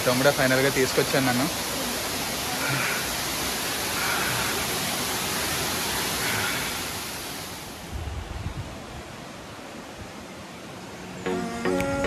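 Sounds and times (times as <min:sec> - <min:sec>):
waterfall rushing: 0:00.0 - 0:08.0.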